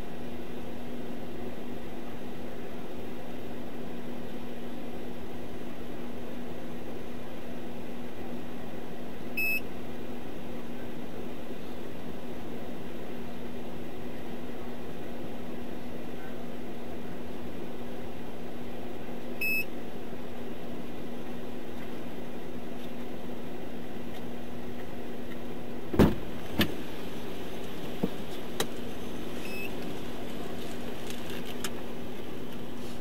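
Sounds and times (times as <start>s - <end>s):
short electronic beep: 9.4s - 9.6s, 19.4s - 19.7s, 29.4s - 29.7s
car interior hum: 25.9s - 33.0s
sharp knocks: 26.0s - 26.8s.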